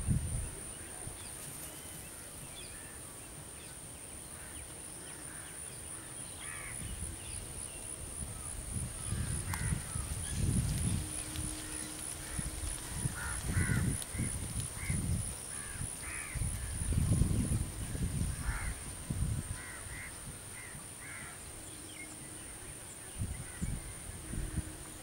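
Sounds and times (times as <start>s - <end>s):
crows cawing: 4.4s - 6.8s, 9.1s - 10.1s, 11.5s - 16.4s, 18.4s - 18.8s, 19.6s - 21.4s
low rumble on microphone: 6.6s - 20.7s.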